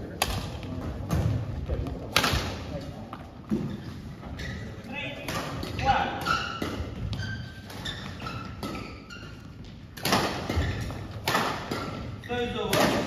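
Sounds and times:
court shoes squeaking: 0:00.0 - 0:13.0
racket hitting shuttlecock: 0:00.1 - 0:01.4, 0:02.1 - 0:02.7, 0:05.2 - 0:13.0.

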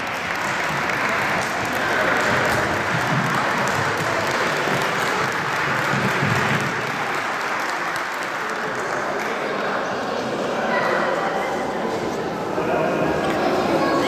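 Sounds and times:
children clapping: 0:00.0 - 0:09.9.

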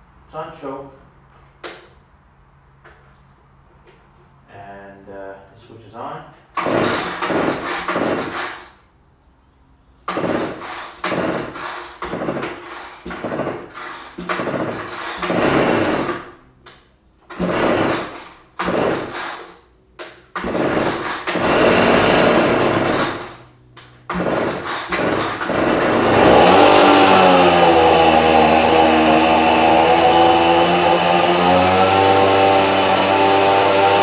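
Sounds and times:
leaf blower engine pull-starting: 0:06.6 - 0:08.8, 0:10.1 - 0:16.4, 0:17.2 - 0:19.6, 0:20.3 - 0:34.0.

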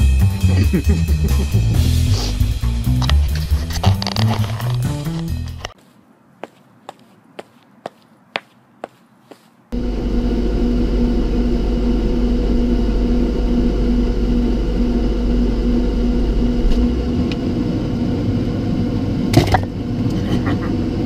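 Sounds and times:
electric appliance hum: 0:09.7 - 0:21.0
pulsing mid-pitched tone: 0:09.8 - 0:17.3.

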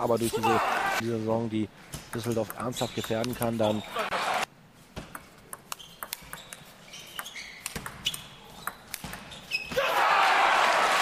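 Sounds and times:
table tennis ball clicking: 0:05.1 - 0:09.3
crowd applauding and cheering: 0:10.0 - 0:11.0.

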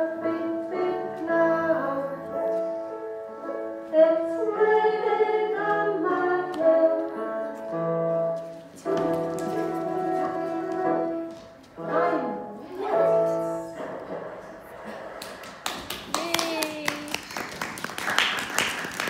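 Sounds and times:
gentle instrumental accompaniment: 0:00.0 - 0:13.7.

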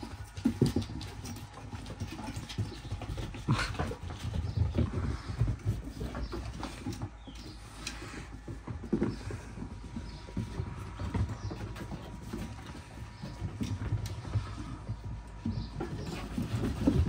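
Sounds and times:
puppies scuffling: 0:00.0 - 0:17.0.

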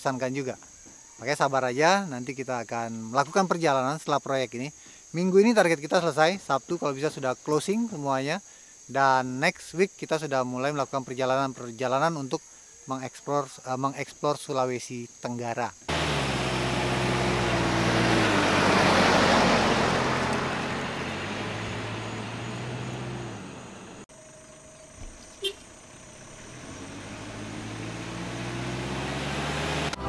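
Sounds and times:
car driving past: 0:15.9 - 0:30.0
road noise inside moving car: 0:15.9 - 0:30.0
car horn toot: 0:25.3 - 0:25.7.

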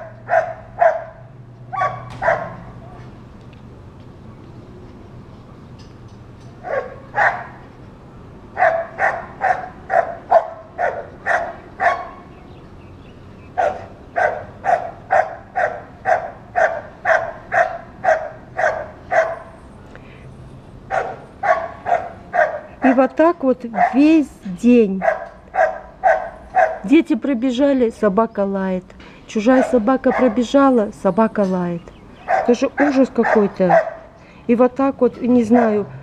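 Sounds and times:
dog barking: 0:00.0 - 0:03.0, 0:06.6 - 0:07.6, 0:08.6 - 0:12.3, 0:13.6 - 0:19.6, 0:20.9 - 0:23.1, 0:23.8 - 0:24.1, 0:25.0 - 0:26.9, 0:29.5 - 0:30.5, 0:32.2 - 0:34.1, 0:35.5 - 0:35.9.

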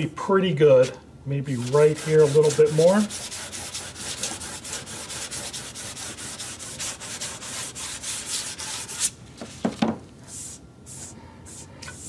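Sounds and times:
sandpaper rubbing on wood: 0:01.5 - 0:09.2.

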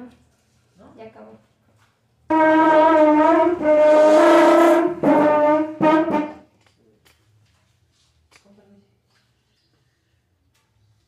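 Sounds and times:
brass horn long notes: 0:02.3 - 0:06.5.

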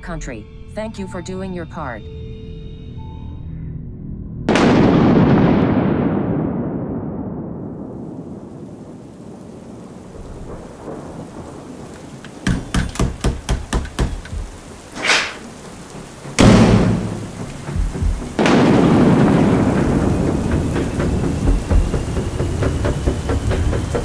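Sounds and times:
loud thunderclap: 0:04.5 - 0:24.0
thunder cracks: 0:04.5 - 0:24.0
rain: 0:05.5 - 0:24.0.

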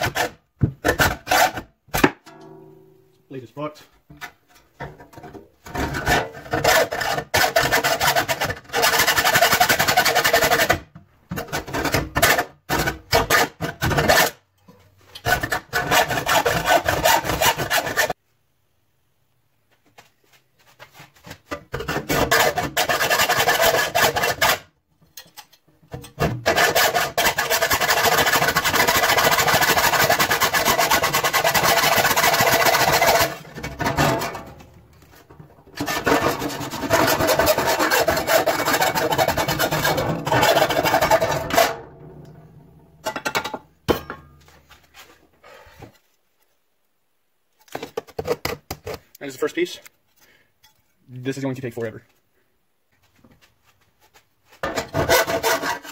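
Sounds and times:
hand saw rasping through sheet steel: 0:00.0 - 0:01.7, 0:06.0 - 0:10.9, 0:15.2 - 0:18.2, 0:21.8 - 0:24.7, 0:26.3 - 0:34.4, 0:35.8 - 0:41.8, 0:54.7 - 0:55.9.

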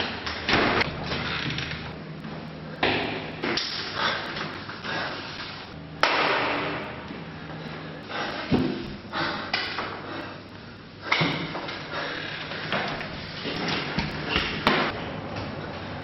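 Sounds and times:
man panting heavily: 0:03.8 - 0:05.6, 0:07.2 - 0:13.4.

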